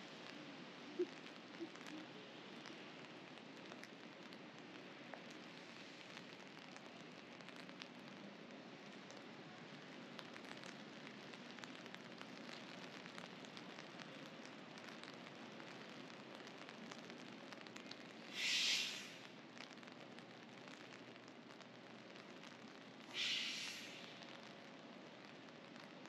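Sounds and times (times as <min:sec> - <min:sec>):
light rain on pavement: 0:00.0 - 0:26.0
short loud hisses: 0:18.3 - 0:19.2, 0:23.1 - 0:24.1.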